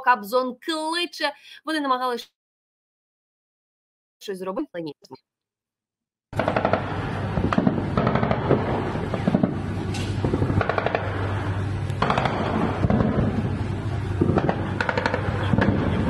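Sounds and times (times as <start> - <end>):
machine-gun fire: 6.4 - 11.3, 12.0 - 13.5, 14.2 - 16.0
steady low hum: 6.4 - 16.0.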